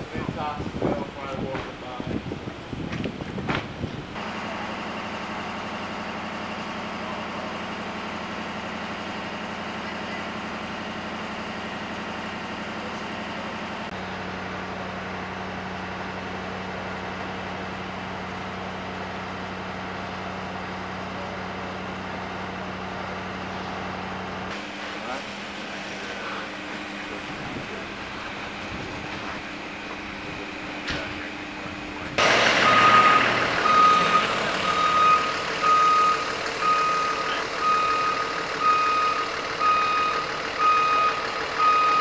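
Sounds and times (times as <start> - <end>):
vehicle engine idling: 0.0 - 42.0.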